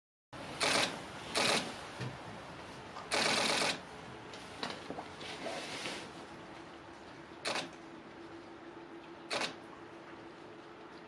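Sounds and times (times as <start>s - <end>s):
camera shutters clicking: 7.5s - 7.7s, 9.3s - 9.6s.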